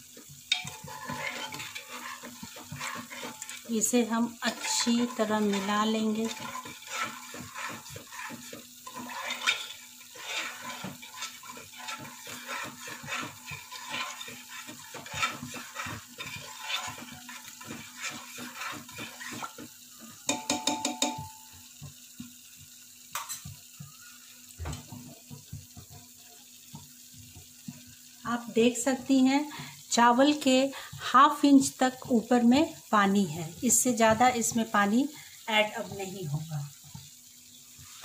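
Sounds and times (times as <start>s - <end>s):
liquid sloshing while stirred: 0.2s - 20.8s
knocks against metal pot: 20.3s - 21.3s
thump: 24.6s - 24.9s.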